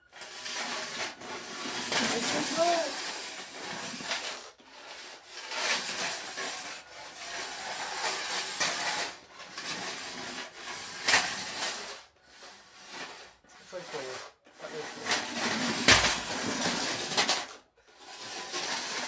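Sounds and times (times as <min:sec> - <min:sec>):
metal scraping floorboards: 0:00.0 - 0:19.0.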